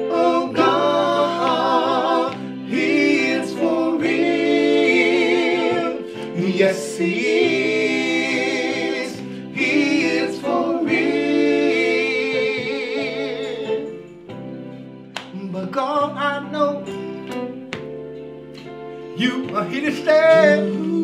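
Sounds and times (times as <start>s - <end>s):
men singing gospel together: 0.0s - 14.1s, 19.1s - 21.0s.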